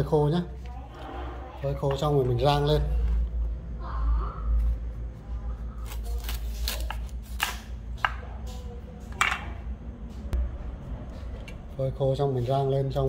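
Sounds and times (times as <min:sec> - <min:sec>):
knife cutting fruit: 0:05.8 - 0:08.7.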